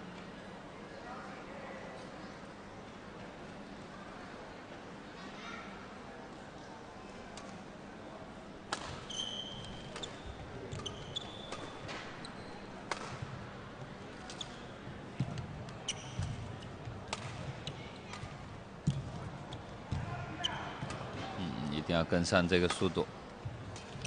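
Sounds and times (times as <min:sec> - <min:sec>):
rackets striking shuttlecock: 0:08.7 - 0:12.1, 0:12.8 - 0:13.4, 0:17.0 - 0:19.1
shoes squeaking: 0:09.0 - 0:13.2, 0:14.2 - 0:14.8, 0:15.8 - 0:16.8.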